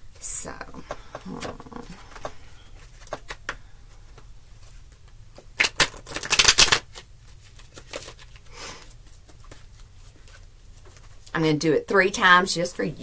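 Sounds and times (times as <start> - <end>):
cards tapping and sliding: 0.8 - 4.2
cards fluttering in shuffle: 5.6 - 11.2.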